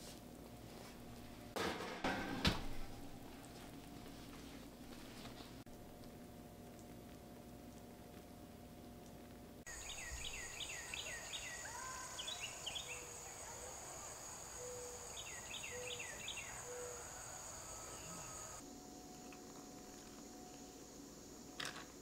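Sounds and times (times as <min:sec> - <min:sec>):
bird chirping: 0:09.7 - 0:18.6
high insect drone: 0:09.7 - 0:22.0
steady hum: 0:11.8 - 0:18.6.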